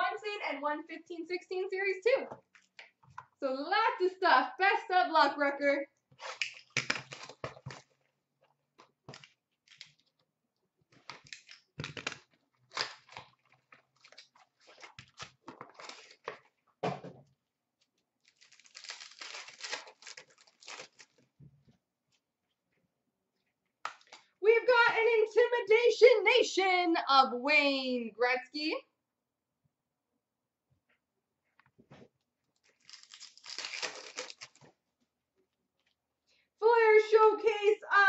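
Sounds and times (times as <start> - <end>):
packs tearing and crinkling: 6.2 - 8.0, 9.1 - 10.2, 10.9 - 16.5, 18.2 - 21.3, 32.6 - 34.7.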